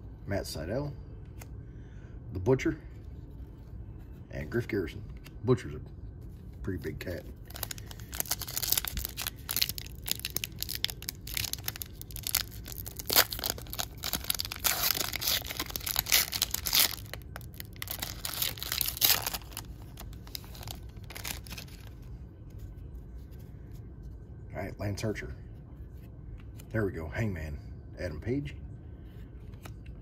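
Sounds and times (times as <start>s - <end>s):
foil wrapper crinkling and tearing: 6.9s - 22.0s.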